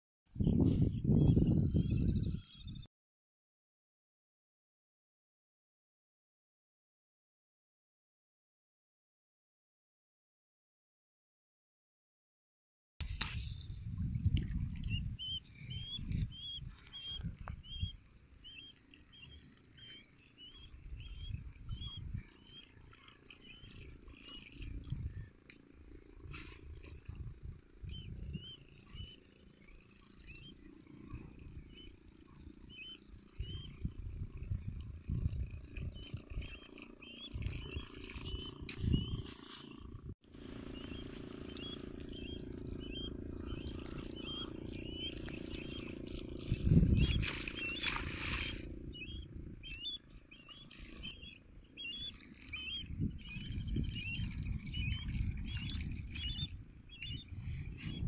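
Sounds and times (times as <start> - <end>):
wind buffeting microphone: 0.3 - 2.9, 13.0 - 58.0
water swishing from wading: 17.9 - 27.2, 35.7 - 57.9
short high chirping call: 40.8 - 58.0.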